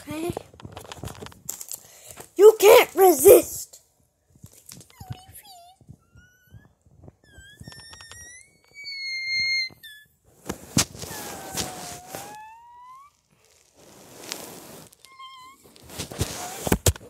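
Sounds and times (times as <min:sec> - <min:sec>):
child making whistle-like squeaks: 0:06.0 - 0:10.1, 0:11.0 - 0:13.2.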